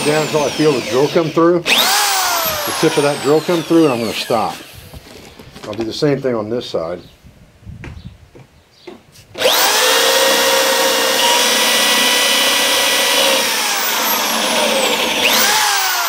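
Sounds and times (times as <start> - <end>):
electric drill boring into wood: 0.0 - 5.4, 9.4 - 16.0.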